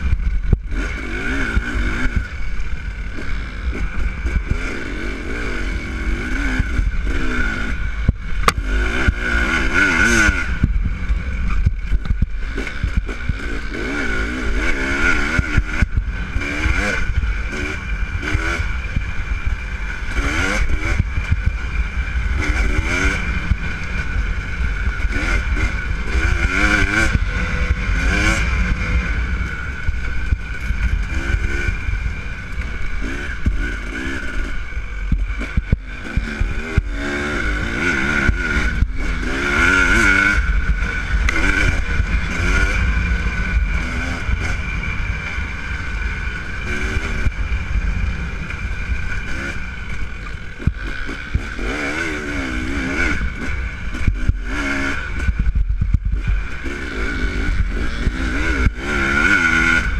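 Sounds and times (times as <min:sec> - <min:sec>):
dirt bike engine revving: 0:00.0 - 0:59.9.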